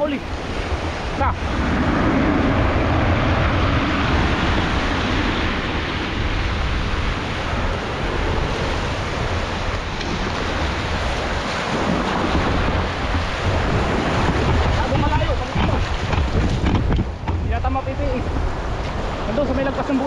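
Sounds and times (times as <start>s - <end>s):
wind buffeting microphone: 0.0s - 20.0s.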